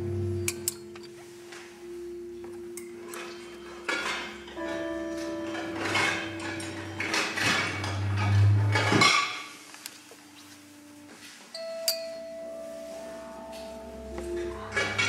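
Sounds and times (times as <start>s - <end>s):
held electronic tones: 0.0s - 8.9s.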